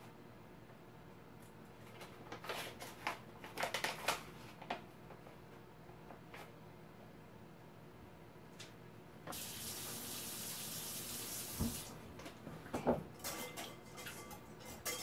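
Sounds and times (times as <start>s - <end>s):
faucet running into sink: 9.3s - 12.0s.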